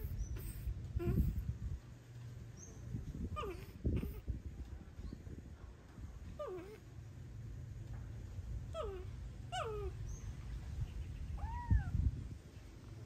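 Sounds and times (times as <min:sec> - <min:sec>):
kitten meowing: 0:11.4 - 0:12.0.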